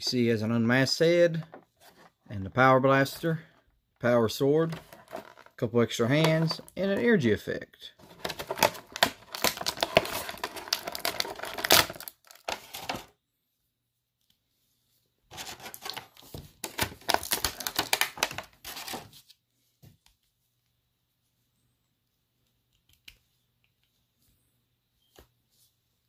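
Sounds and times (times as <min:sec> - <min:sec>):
plastic packaging crinkling and clicking: 0:04.7 - 0:05.5, 0:08.0 - 0:13.1, 0:15.3 - 0:19.1.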